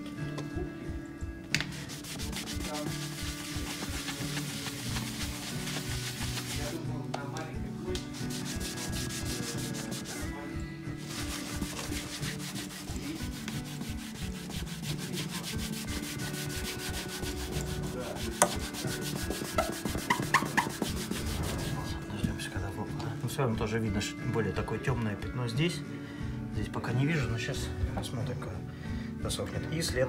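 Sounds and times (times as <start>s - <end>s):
rag rubbing wooden floor: 1.7s - 6.8s, 8.1s - 10.2s, 11.0s - 22.0s.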